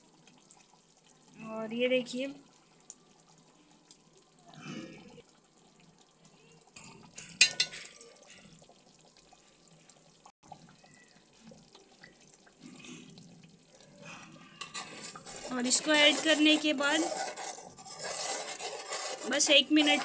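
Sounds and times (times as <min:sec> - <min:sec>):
gravy simmering in a pot: 0:00.0 - 0:20.0
kitchen handling noises: 0:07.2 - 0:08.2
steel spoon clinking on utensil: 0:07.4 - 0:08.2.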